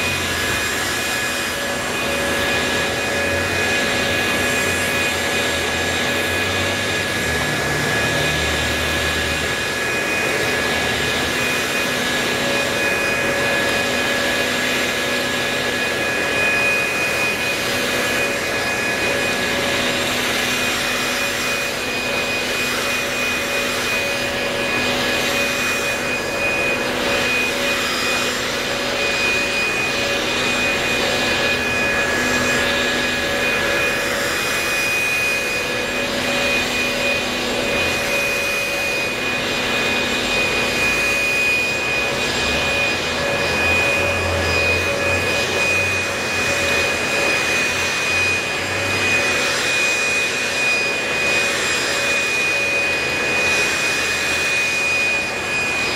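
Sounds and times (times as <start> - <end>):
leaf blowers whining: 0.0 - 55.9.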